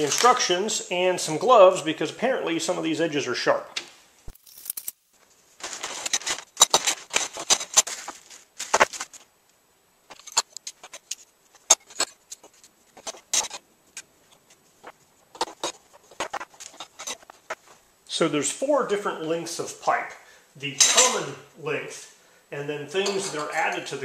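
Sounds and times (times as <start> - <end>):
plastic packaging crinkling: 4.3 - 5.0, 5.6 - 9.3.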